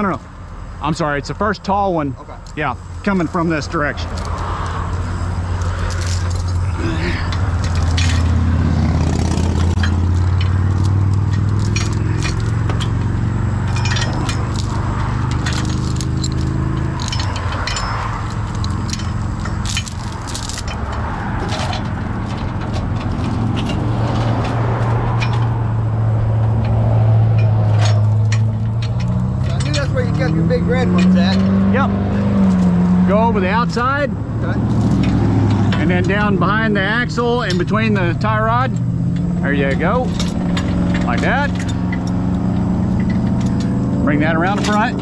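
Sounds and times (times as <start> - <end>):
diesel engine humming: 0.0 - 45.0
chain clinking and rattling: 2.8 - 32.9, 34.5 - 45.0.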